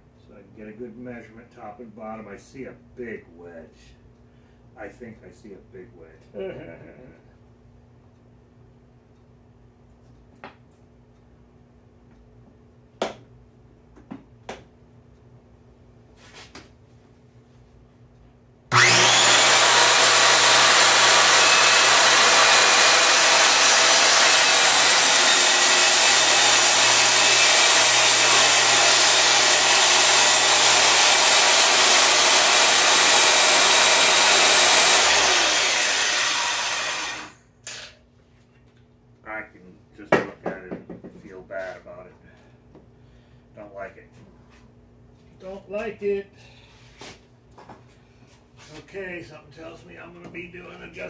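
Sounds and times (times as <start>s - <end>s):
table saw motor whine: 18.7s - 37.9s.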